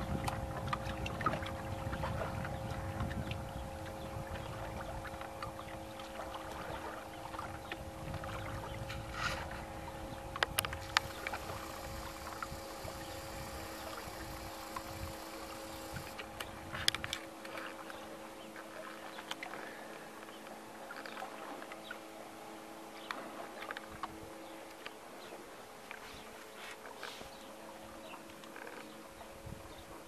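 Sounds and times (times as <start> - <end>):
wind buffeting microphone: 0.0 - 5.7, 6.6 - 17.1
faint steady hum: 0.0 - 30.0
small clicks: 10.4 - 17.2.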